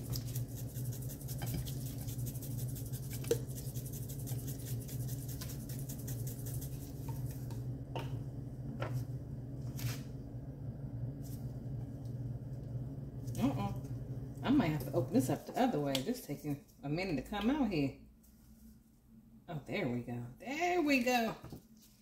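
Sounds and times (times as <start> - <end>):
spice shaker rattling: 0.0 - 7.3
steady low hum: 0.0 - 20.9.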